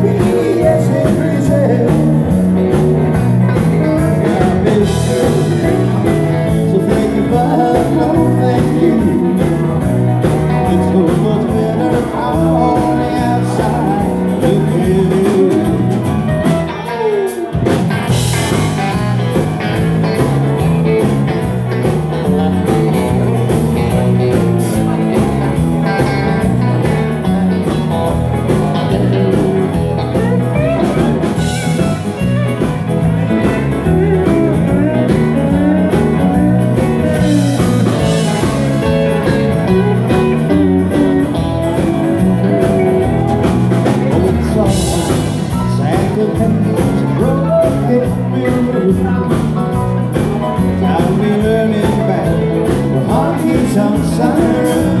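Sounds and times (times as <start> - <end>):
person singing: 0.0 - 2.4, 4.0 - 16.2, 43.8 - 55.0
live rock and roll band: 0.0 - 55.0.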